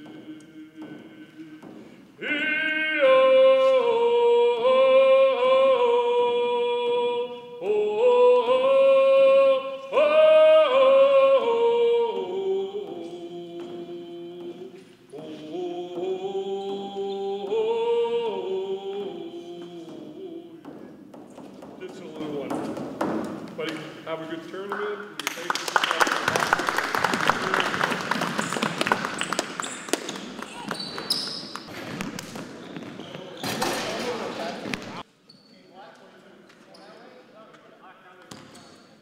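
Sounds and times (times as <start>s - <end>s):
man singing loudly: 0.0s - 20.8s.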